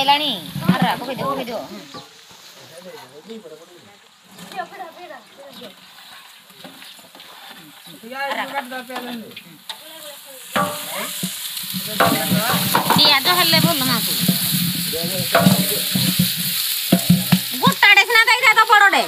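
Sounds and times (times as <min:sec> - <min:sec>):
onions sizzling in a pot: 0:00.0 - 0:19.0
wooden stick scraping a pot: 0:04.3 - 0:09.8, 0:10.6 - 0:17.7.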